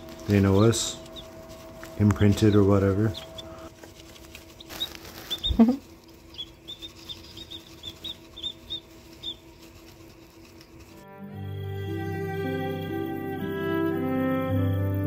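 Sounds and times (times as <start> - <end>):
chicks peeping: 0.0 - 14.5.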